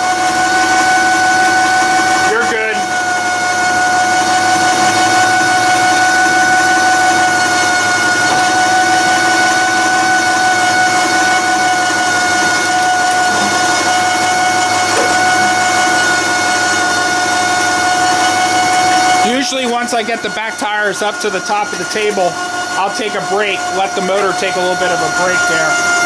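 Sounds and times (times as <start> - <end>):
electric winch motor whining: 0.0 - 26.0.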